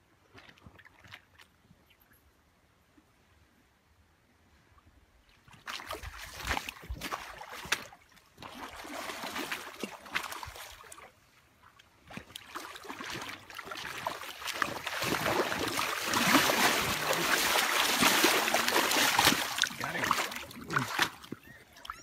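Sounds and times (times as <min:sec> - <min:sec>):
fish splashing in shallow water: 0:05.3 - 0:22.0.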